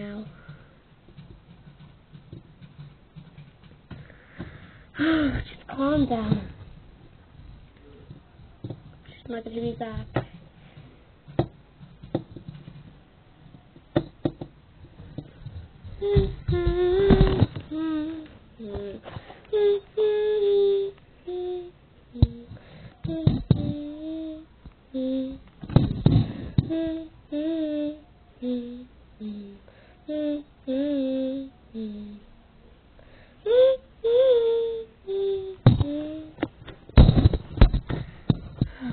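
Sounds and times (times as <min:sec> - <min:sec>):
light knocks and taps: 0:13.8 - 0:15.3
person humming: 0:15.9 - 0:25.5, 0:26.1 - 0:32.3, 0:33.4 - 0:36.5.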